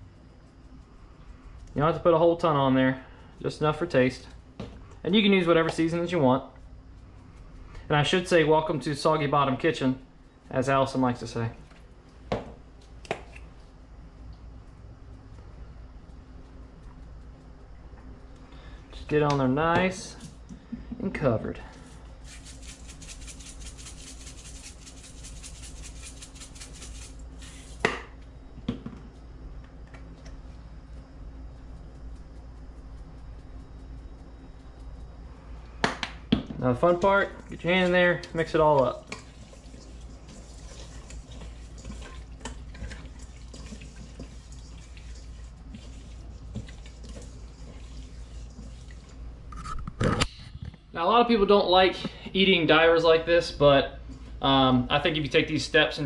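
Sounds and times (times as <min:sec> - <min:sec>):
bottle knocking on wooden counter: 0:12.3 - 0:12.6
spice shaker rattling: 0:21.7 - 0:27.9, 0:37.0 - 0:49.3
wet squelches of meat handled in bowl: 0:37.0 - 0:49.3.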